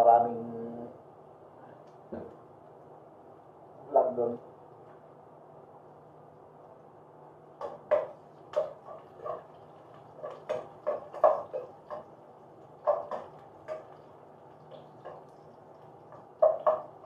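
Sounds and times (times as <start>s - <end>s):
metal spoon scraping a pot: 8.6s - 12.1s.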